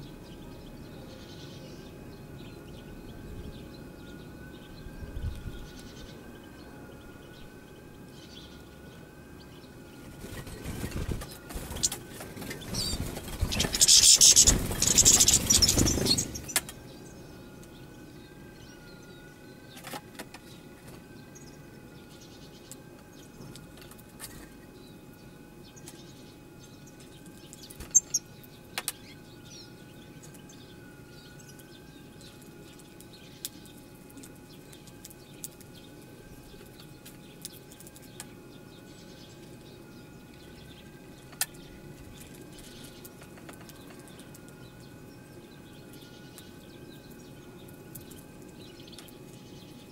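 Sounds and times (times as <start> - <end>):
steady low hum: 0.0 - 49.9
goldfinches chirping: 10.8 - 19.2, 24.8 - 33.8.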